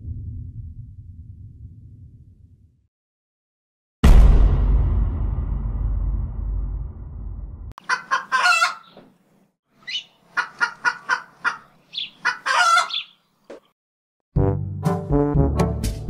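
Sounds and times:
chickens clucking: 7.8s - 9.1s, 9.8s - 13.7s
brass music cue: 14.3s - 16.0s.

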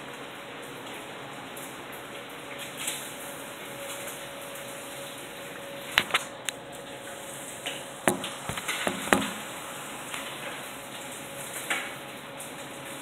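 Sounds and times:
heavy rain pouring: 0.5s - 13.0s
sharp clicks and knocks: 8.1s - 9.5s.

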